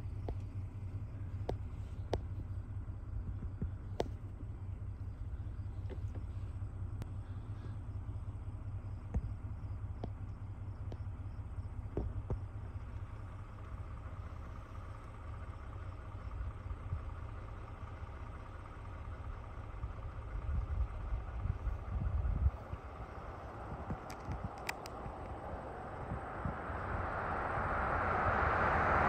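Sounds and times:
car driving rumble: 0:00.0 - 0:29.0
faint ticks: 0:09.0 - 0:11.2, 0:23.8 - 0:25.5.

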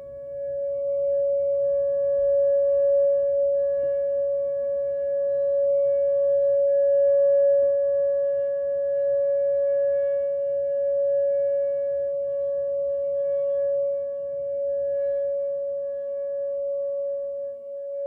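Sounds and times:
warning siren steady tone: 0:00.0 - 0:18.0.

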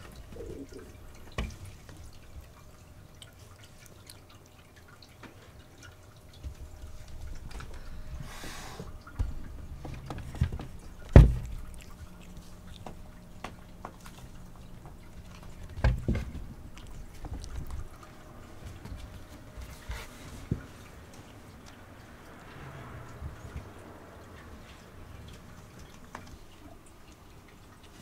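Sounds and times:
paws thumping on wooden shelf: 0:09.1 - 0:20.9.

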